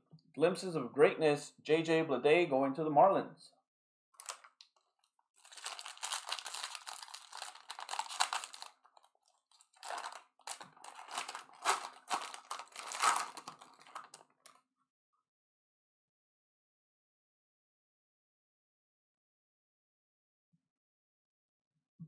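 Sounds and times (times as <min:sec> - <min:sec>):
wrapper crinkling and tearing: 0:04.2 - 0:04.6, 0:05.4 - 0:14.6.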